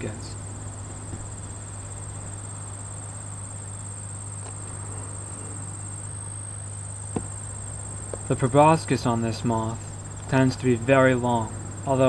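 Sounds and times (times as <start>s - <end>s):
insects trilling: 0.0s - 12.0s
low steady hum: 0.0s - 12.0s.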